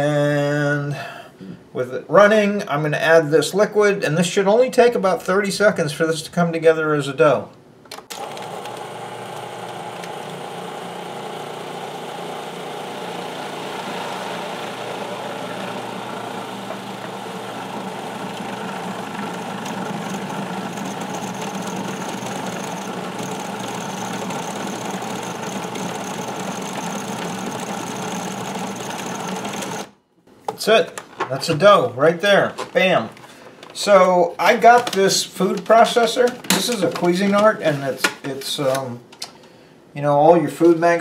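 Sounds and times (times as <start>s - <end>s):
food processor motor running: 8.1s - 30.0s.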